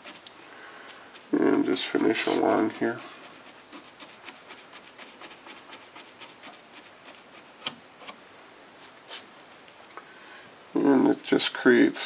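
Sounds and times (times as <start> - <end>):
paintbrush dabbing: 0.0 - 0.3, 0.9 - 8.2.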